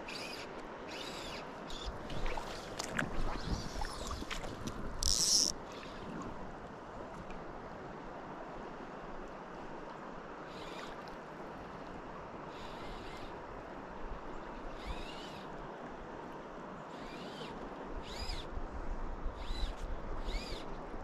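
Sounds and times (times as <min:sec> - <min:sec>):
river water flowing: 0:00.0 - 0:21.0.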